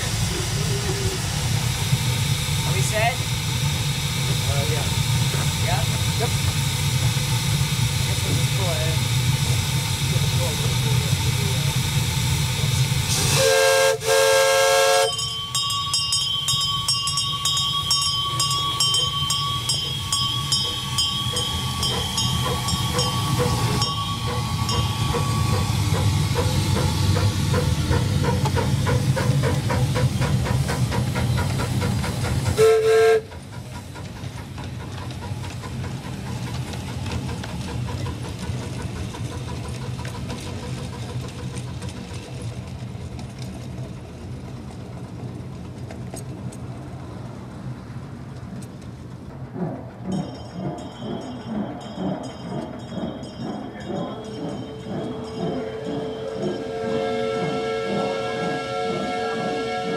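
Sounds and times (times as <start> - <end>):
engine and wheels rumbling on rail: 0.0 - 59.9
steam whistle blowing: 13.2 - 15.4, 32.6 - 33.3, 54.9 - 59.9.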